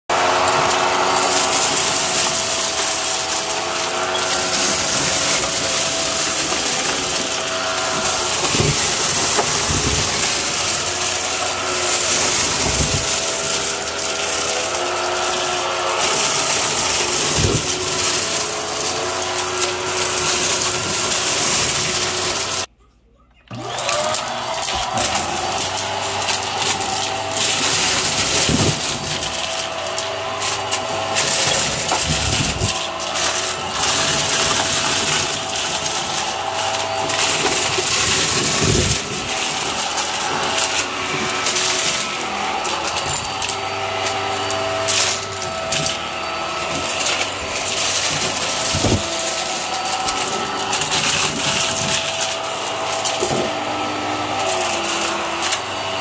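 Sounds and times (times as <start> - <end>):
vacuum cleaner whining: 0.0 - 22.7, 23.5 - 56.0.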